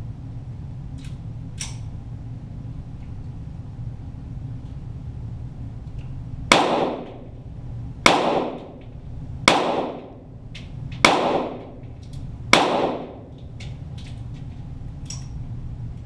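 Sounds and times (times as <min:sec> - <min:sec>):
pistol shots echoing: 0:06.5 - 0:07.3, 0:08.0 - 0:08.8, 0:09.5 - 0:10.2, 0:11.0 - 0:11.8, 0:12.5 - 0:13.3.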